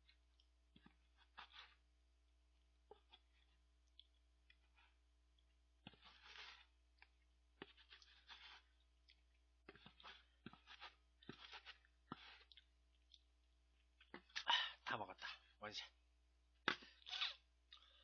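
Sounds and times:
noodle slurping and chewing: 0.0 - 14.5, 16.6 - 18.0.

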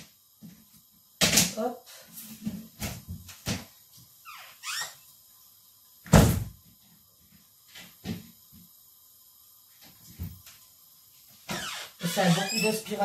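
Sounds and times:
loud thump: 6.1 - 6.6.

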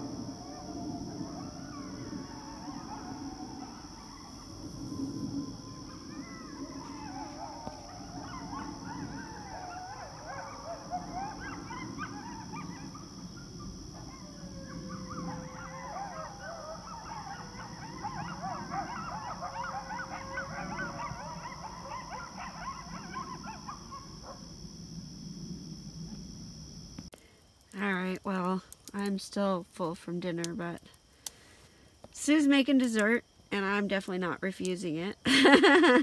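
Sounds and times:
coyotes howling and yipping: 0.0 - 26.9.

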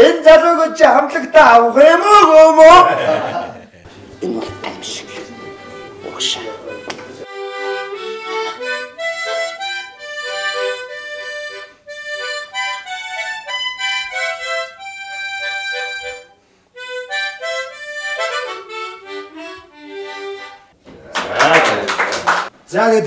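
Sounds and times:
harmonica melody: 4.3 - 20.8.

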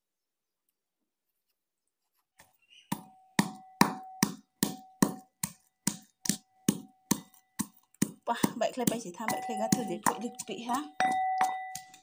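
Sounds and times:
pounding in a metal bowl: 2.9 - 12.0.

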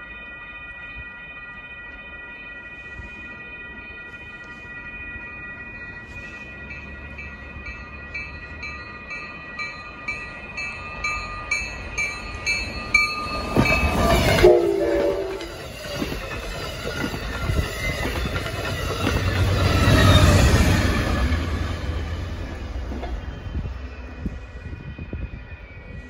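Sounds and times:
crossing bell dinging: 0.0 - 26.0
train cars rumbling and clattering: 2.8 - 26.0
train horn: 14.1 - 15.6.

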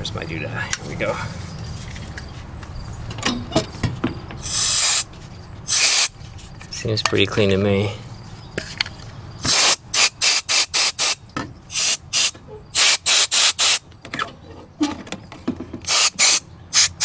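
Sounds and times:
compressed air hissing blasts: 4.4 - 6.2, 9.4 - 13.8, 15.8 - 17.0.

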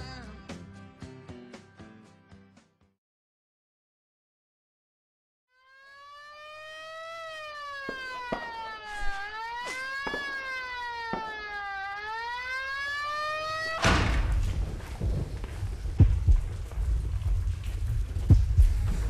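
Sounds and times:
police siren wailing: 5.5 - 14.4.

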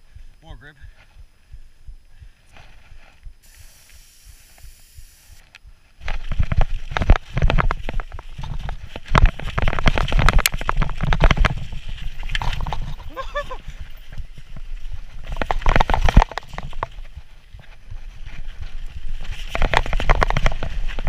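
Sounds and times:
wind rumble on camera: 4.6 - 21.0
bike clattering over rough ground: 6.0 - 21.0.

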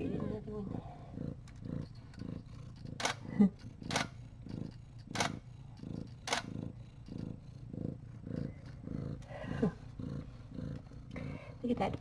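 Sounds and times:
cat purring: 0.0 - 12.0
sharp clicks: 1.4 - 5.4.

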